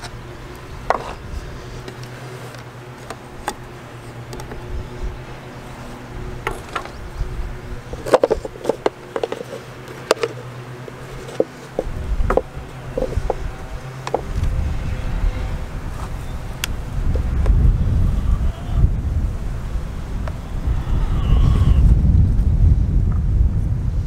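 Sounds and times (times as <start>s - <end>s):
plastic cup and brush clicking: 7.9s - 13.4s.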